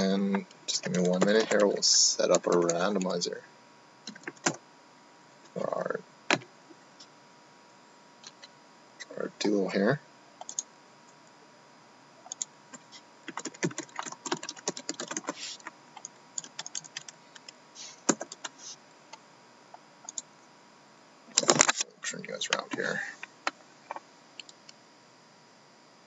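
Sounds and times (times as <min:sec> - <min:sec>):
laptop keyboard typing: 0:00.7 - 0:03.2, 0:04.1 - 0:04.6, 0:10.4 - 0:10.6, 0:12.3 - 0:18.6.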